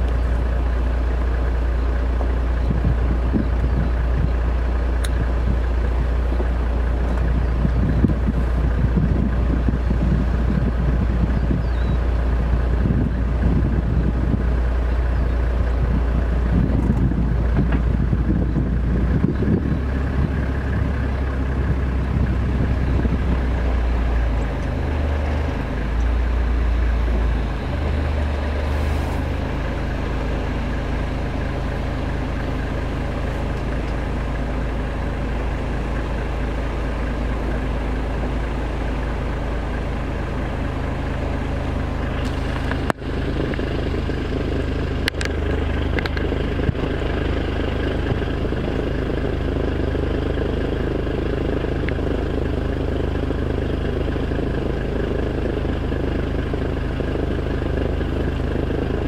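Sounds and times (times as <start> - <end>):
car engine running: 0.0 - 59.0
wind rumbling on microphone: 2.2 - 29.8, 41.8 - 49.4.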